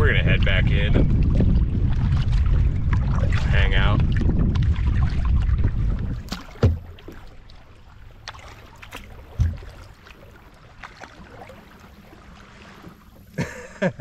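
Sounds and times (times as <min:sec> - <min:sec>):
water splashing against kayak hull: 0:00.0 - 0:14.0
sharp low knocks: 0:05.3 - 0:07.2, 0:09.2 - 0:10.0.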